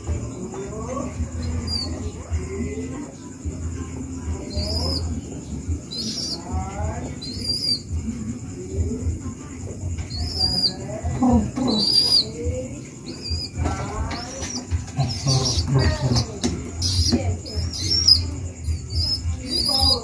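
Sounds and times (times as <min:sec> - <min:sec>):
baby pigeon squeaky begging calls: 0:00.8 - 0:02.7, 0:04.3 - 0:08.2, 0:09.9 - 0:20.0.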